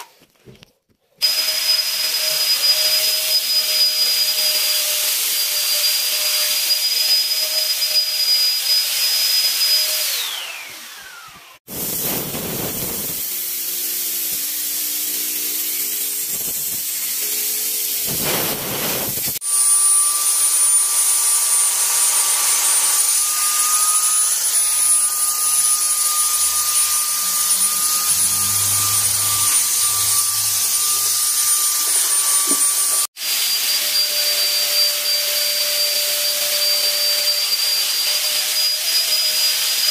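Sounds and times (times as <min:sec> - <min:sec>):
fogger blower motor whining: 0:09.9 - 0:38.0.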